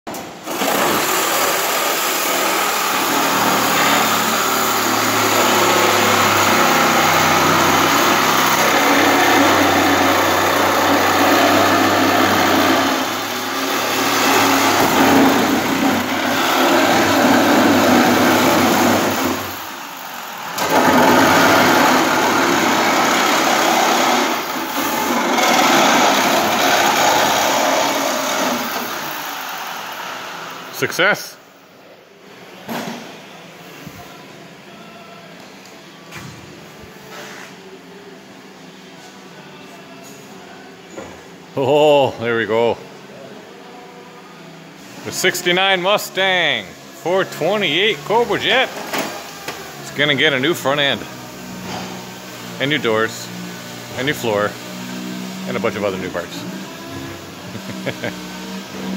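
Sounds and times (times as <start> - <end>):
power tool cutting steel: 0.4 - 30.7, 46.2 - 58.9.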